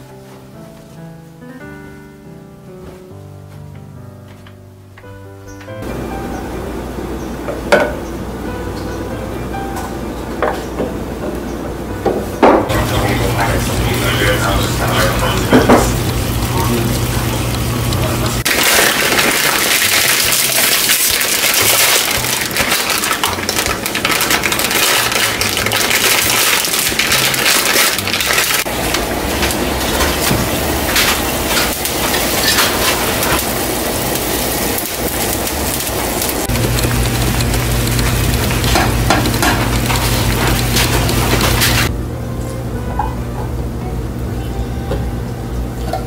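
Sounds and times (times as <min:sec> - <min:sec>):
water boiling in a pot: 0:12.7 - 0:41.9
plastic wrapper crinkling and tearing: 0:18.5 - 0:28.7.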